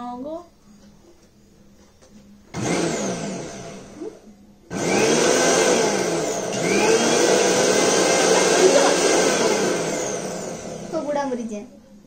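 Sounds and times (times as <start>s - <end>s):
mixer grinder running: 2.6s - 11.5s.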